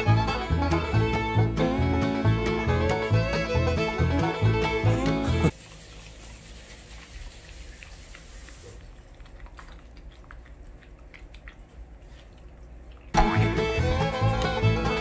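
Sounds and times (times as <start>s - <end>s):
puppy chewing food: 5.5s - 15.0s.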